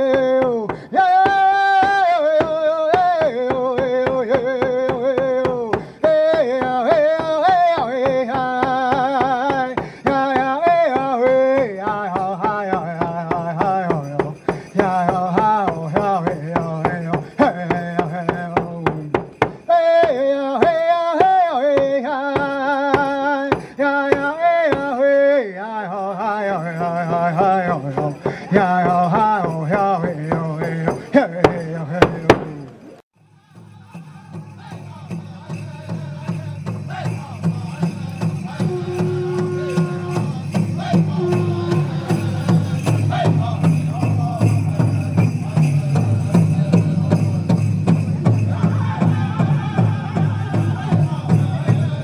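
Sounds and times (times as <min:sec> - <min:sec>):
hand drum beat: 0:00.0 - 0:24.9, 0:26.5 - 0:32.8, 0:34.2 - 0:52.0
bells jingling: 0:01.3 - 0:25.1, 0:25.9 - 0:52.0
person chanting: 0:19.7 - 0:52.0.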